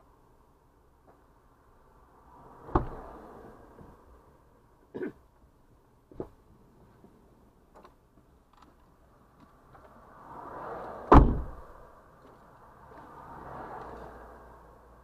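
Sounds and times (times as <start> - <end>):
sharp loud thud: 11.1 - 11.6.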